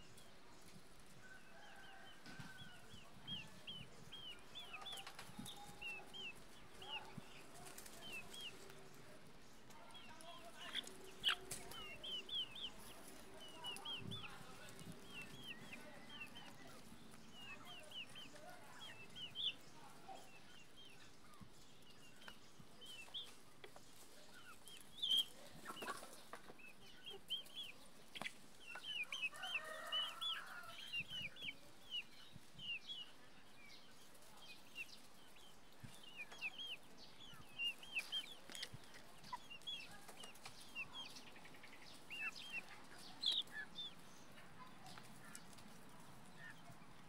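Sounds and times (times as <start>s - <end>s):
chickens peeping: 0.0s - 47.0s.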